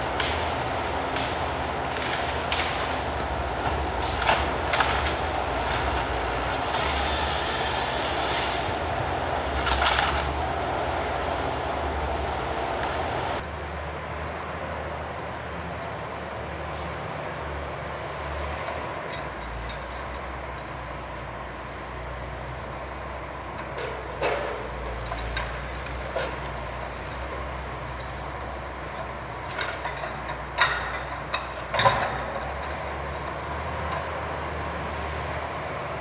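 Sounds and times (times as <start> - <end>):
knocks and clanks of logs: 0.0 - 7.0, 9.5 - 10.4, 23.6 - 26.5, 29.0 - 32.8
logging machine engine: 0.0 - 36.0.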